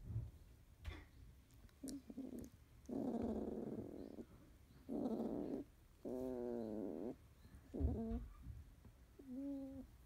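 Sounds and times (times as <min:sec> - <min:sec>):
puppy growling: 0:01.8 - 0:08.3, 0:09.2 - 0:09.9.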